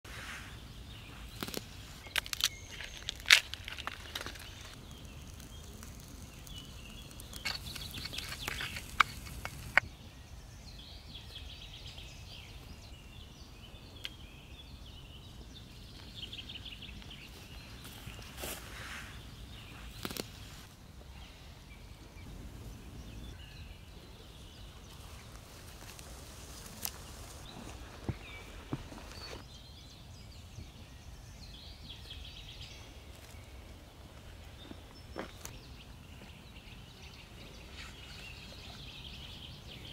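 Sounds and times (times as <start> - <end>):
birds chirping and singing: 0.1 - 26.1.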